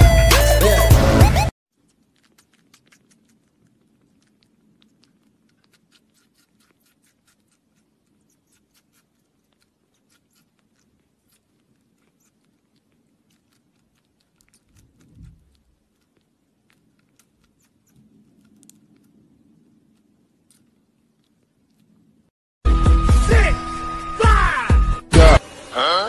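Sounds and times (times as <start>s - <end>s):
kitten suckling wet clicks: 1.7s - 22.3s.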